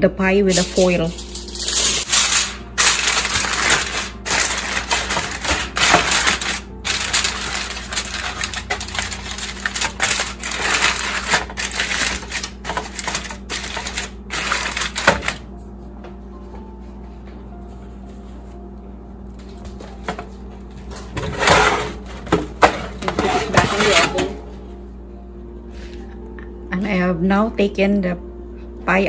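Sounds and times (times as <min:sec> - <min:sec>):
aluminium foil crinkling: 0:00.5 - 0:15.5.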